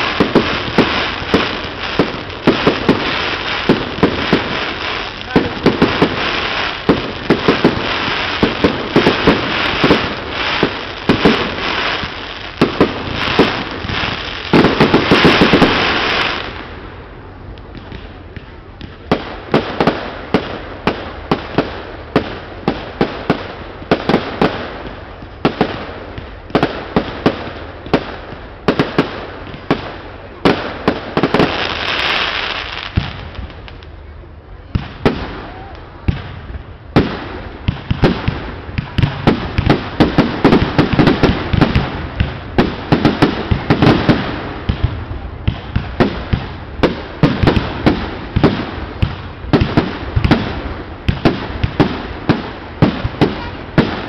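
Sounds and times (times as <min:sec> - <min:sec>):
hissing crackle of fireworks: 0:00.0 - 0:54.0.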